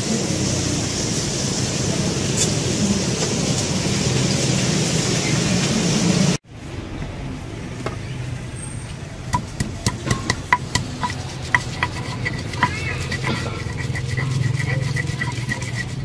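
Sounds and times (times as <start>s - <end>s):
pestle knocking in mortar: 9.4s - 16.0s.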